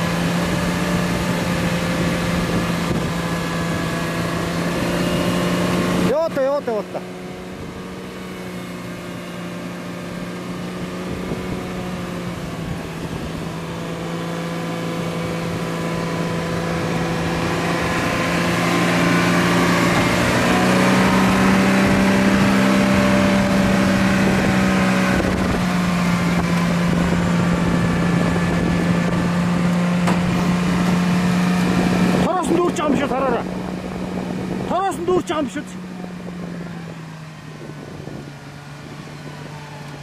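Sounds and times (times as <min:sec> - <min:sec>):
electric winch motor whine: 0:35.8 - 0:40.0.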